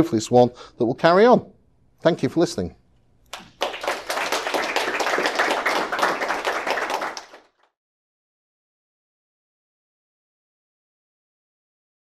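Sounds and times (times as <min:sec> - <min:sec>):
audience applauding: 0:03.3 - 0:07.7.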